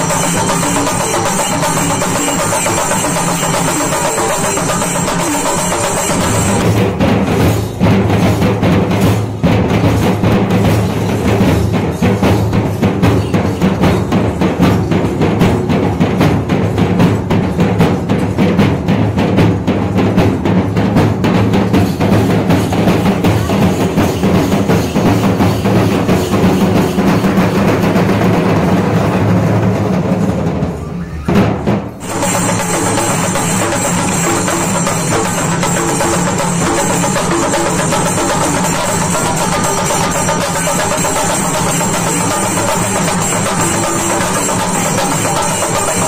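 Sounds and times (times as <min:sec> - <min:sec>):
music with held high notes: 0:00.0 - 0:06.8, 0:32.0 - 0:46.0
rapid drumming: 0:00.0 - 0:46.0.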